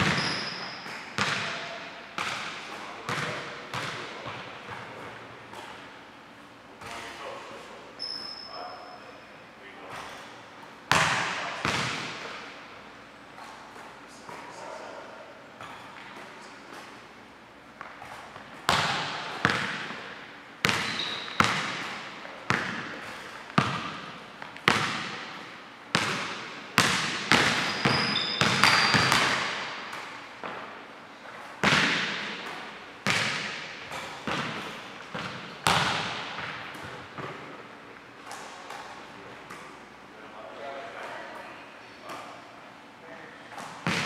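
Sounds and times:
basketball bouncing on hardwood floor: 0.0s - 1.6s, 3.1s - 4.8s, 10.9s - 12.1s, 18.7s - 20.0s, 20.6s - 30.6s, 31.6s - 37.5s
sneaker squeaks: 0.0s - 1.9s, 7.9s - 10.4s, 15.6s - 17.0s, 20.6s - 24.0s, 27.2s - 30.6s.

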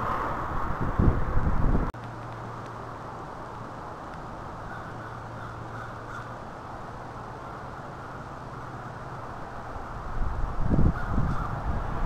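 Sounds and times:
crows cawing faintly: 4.6s - 6.7s, 10.8s - 11.7s.

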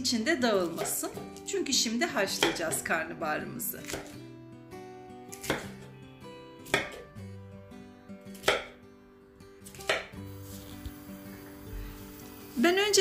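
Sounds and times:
soft background music: 0.0s - 13.0s
knife chopping on wooden board: 0.7s - 1.0s, 2.4s - 2.8s, 3.8s - 4.1s, 5.3s - 5.8s, 6.6s - 7.0s, 8.4s - 8.8s, 9.6s - 10.1s.

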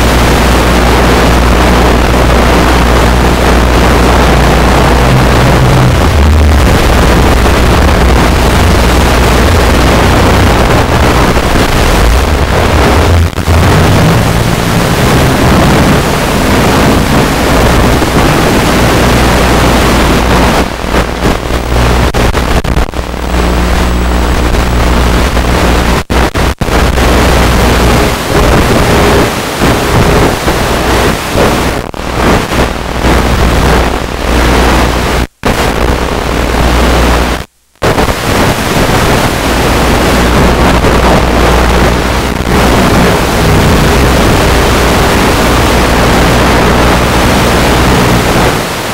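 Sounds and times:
wind rushing: 2.8s - 20.5s.

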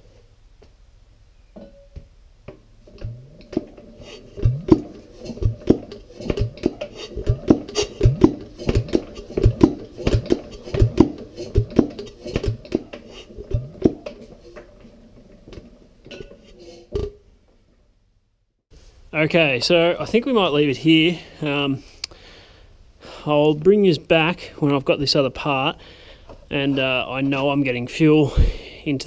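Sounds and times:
engine cranked by hand clacking: 3.0s - 14.8s.

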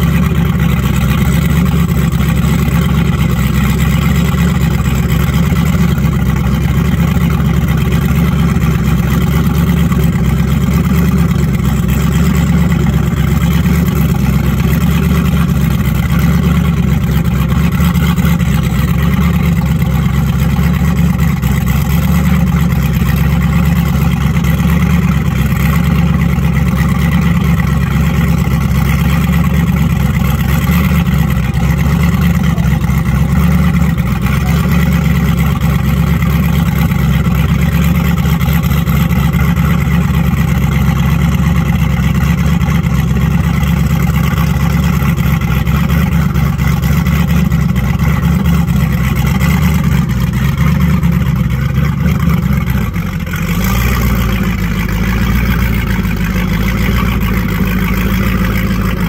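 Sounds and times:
power boat engine idling: 0.0s - 59.0s.

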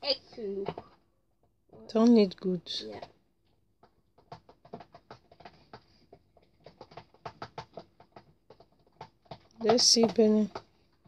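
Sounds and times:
spoon knocking plastic tub: 9.6s - 10.6s.

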